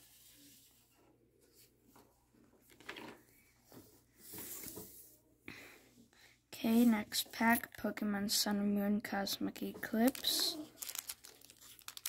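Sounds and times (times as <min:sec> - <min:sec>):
trading cards rustling: 0:09.9 - 0:12.0.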